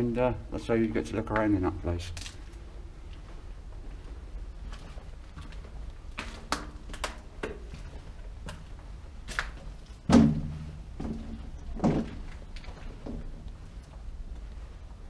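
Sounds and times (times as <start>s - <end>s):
irregular knocks and thuds: 10.0s - 13.5s.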